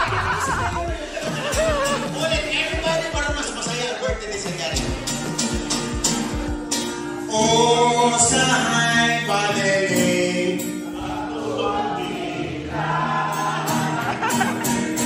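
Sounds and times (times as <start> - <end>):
man singing: 0.0 - 5.0, 7.2 - 12.2
strummed acoustic guitar: 0.0 - 15.0.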